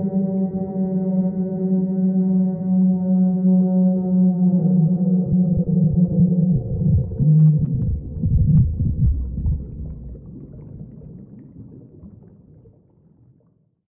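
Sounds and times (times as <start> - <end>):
eerie ambient drone: 0.0 - 10.4.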